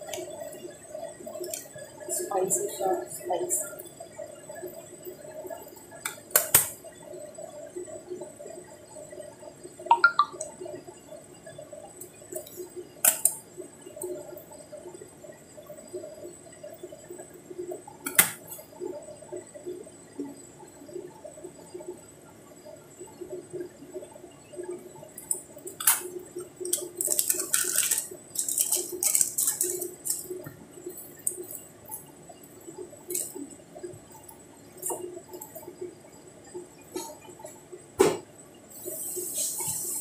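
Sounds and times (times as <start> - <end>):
scissors snipping plastic: 26.7 - 30.3.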